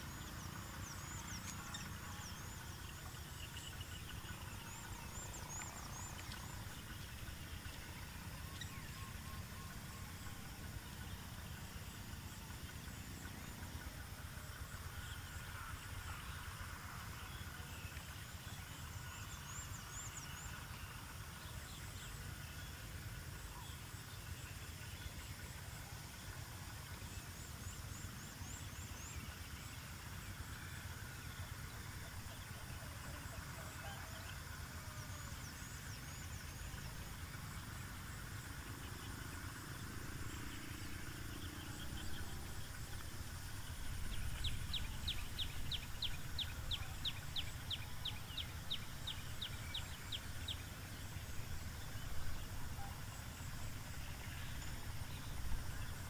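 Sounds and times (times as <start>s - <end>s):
low steady rumble: 0.0s - 56.0s
faint bird chirps: 38.5s - 56.0s.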